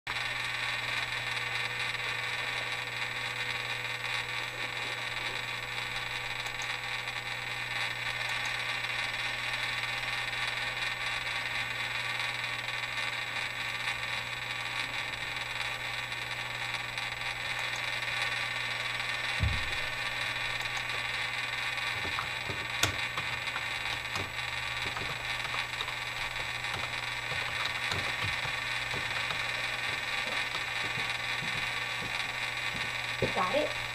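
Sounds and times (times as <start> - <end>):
low hum: 18.8 - 33.9
faint knocks: 22.0 - 33.6.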